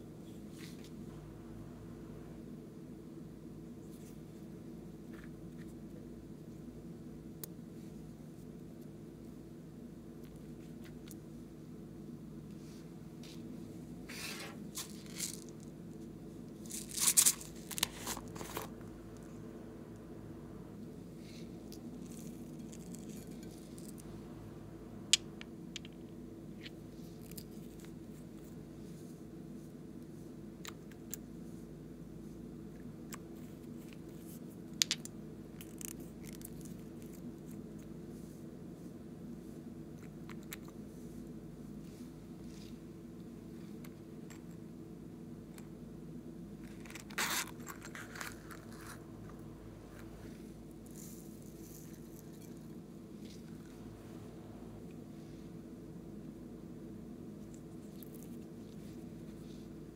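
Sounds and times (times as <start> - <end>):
steady low hum: 0.0 - 59.9
plastic tub crinkling and scraping: 16.7 - 18.8.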